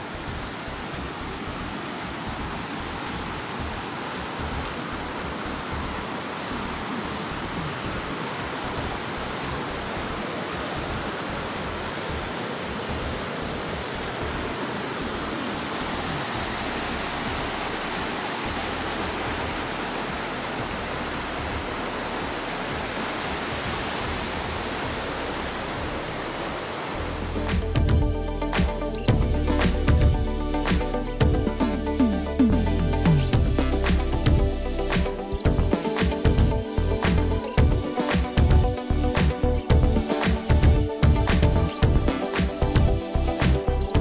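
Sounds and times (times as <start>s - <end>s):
creek water rushing: 0.0s - 44.0s
music with a beat: 27.3s - 44.0s.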